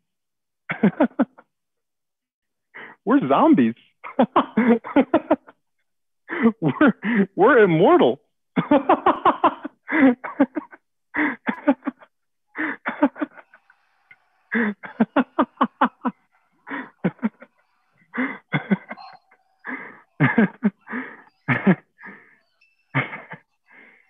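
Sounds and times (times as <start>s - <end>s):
man laughing: 0.7s - 1.4s, 4.0s - 5.5s, 6.3s - 7.4s, 8.6s - 13.6s, 14.5s - 22.3s, 23.0s - 23.6s.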